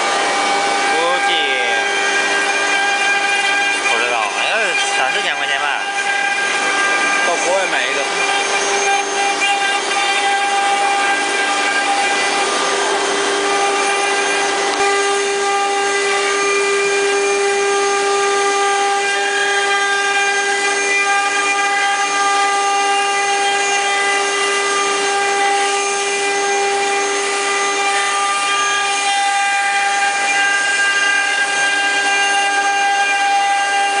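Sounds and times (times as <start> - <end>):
router spindles whining: 0.0 - 34.0.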